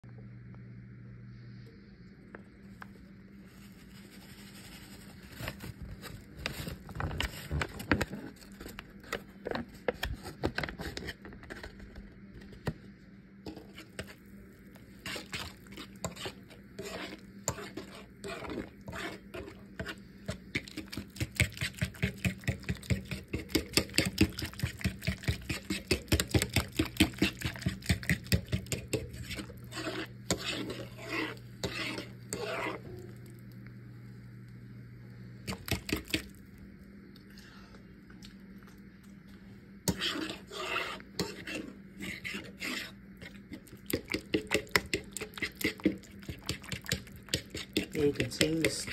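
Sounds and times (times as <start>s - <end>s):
utensil scraping pan: 15.0s - 33.1s, 39.9s - 48.9s.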